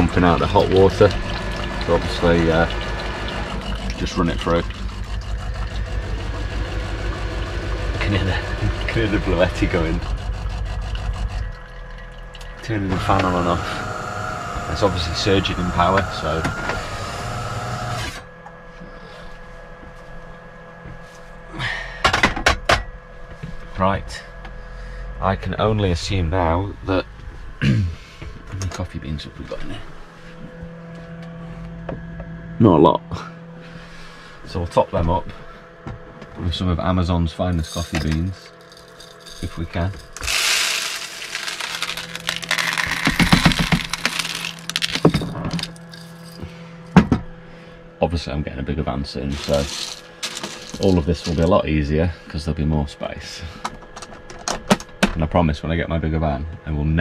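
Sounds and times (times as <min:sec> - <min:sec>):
coffee beans rattling into hopper: 0:00.0 - 0:11.6, 0:12.7 - 0:18.0, 0:37.6 - 0:46.4, 0:49.2 - 0:51.6
electric appliance whirring: 0:00.0 - 0:19.2, 0:38.1 - 0:47.2, 0:49.2 - 0:51.6.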